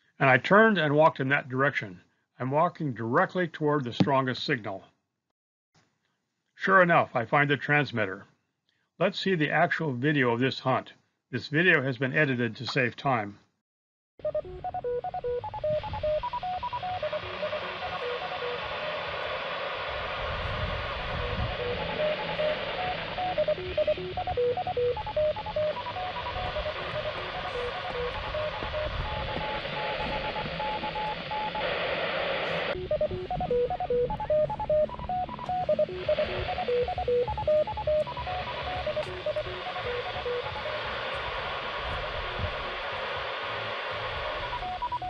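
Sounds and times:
short beeping tones: 0:14.2 - 0:18.6, 0:21.1 - 0:31.6, 0:32.7 - 0:40.8
radio static hiss: 0:14.2 - 0:45.0.

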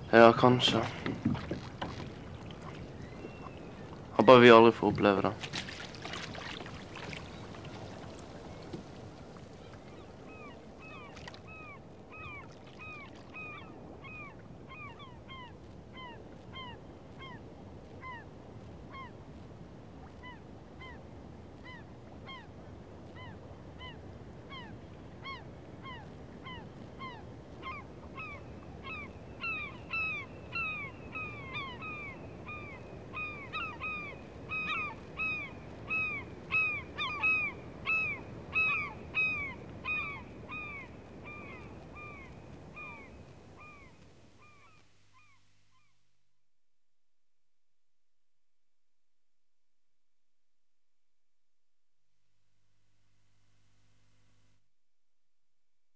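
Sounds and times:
flock of birds calling: 0:00.0 - 0:09.0.

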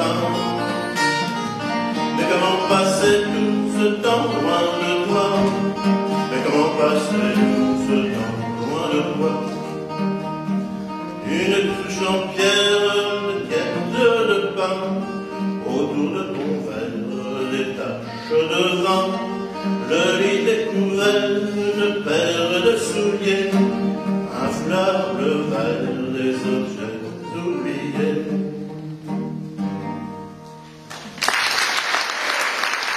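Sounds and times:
acoustic guitar picking: 0:00.0 - 0:31.2
audience applause: 0:30.9 - 0:32.9.

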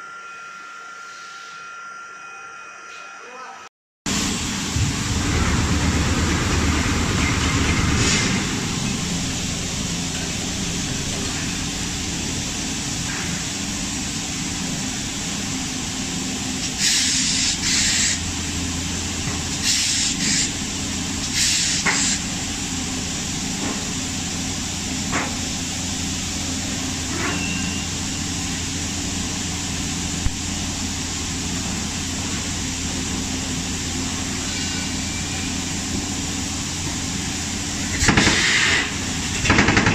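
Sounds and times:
moulding machine humming: 0:04.1 - 0:39.9
compressed air hissing: 0:16.6 - 0:18.2, 0:19.5 - 0:20.6, 0:21.2 - 0:22.3, 0:37.9 - 0:39.1.

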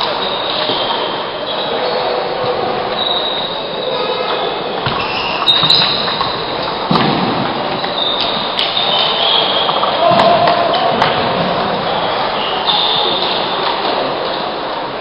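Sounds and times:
hubbub of voices: 0:00.0 - 0:15.0
short high squeaks: 0:02.9 - 0:06.3.

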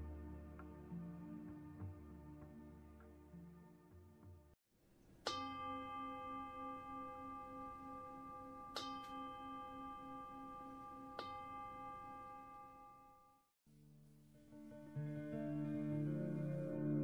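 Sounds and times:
singing bowl ringing: 0:05.2 - 0:13.5.

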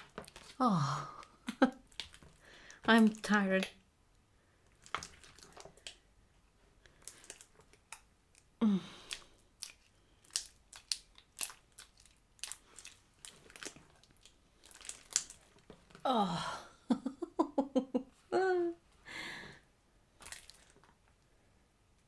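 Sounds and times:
slime squelching and popping: 0:00.0 - 0:00.6, 0:01.2 - 0:03.8, 0:04.7 - 0:06.0, 0:06.8 - 0:16.0, 0:20.2 - 0:20.9.

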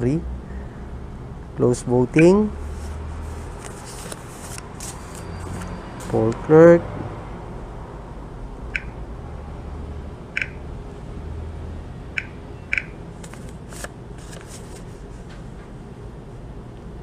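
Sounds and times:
soft rustling: 0:02.6 - 0:05.2
taps on touchscreen keypad: 0:10.4 - 0:10.6.

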